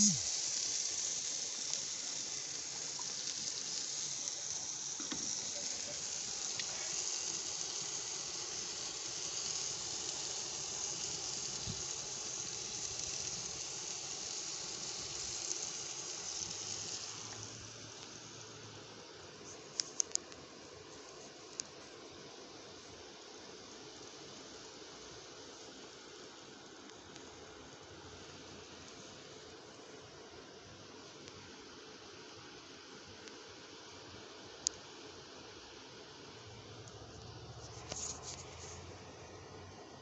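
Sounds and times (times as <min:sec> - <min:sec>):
meat sizzling on a grill: 0:00.0 - 0:18.6.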